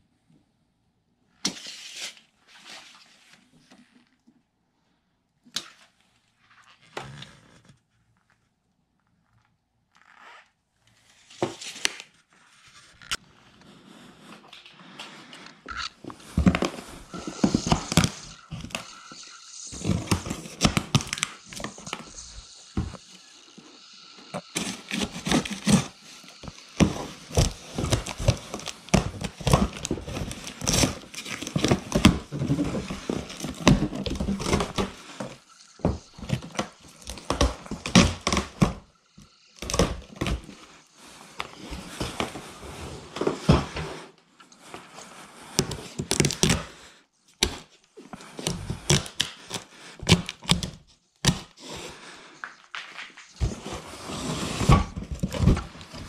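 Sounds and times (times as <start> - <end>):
cardboard rustling and scraping: 16.0 - 23.4, 24.3 - 38.9, 39.6 - 46.6, 47.5 - 56.0.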